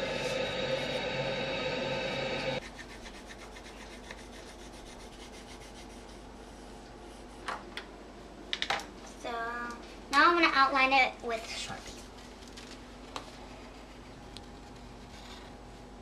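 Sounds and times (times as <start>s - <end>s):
drone of held tones: 0.0s - 2.6s
pencil scratching on paper: 2.6s - 7.4s, 13.4s - 15.6s.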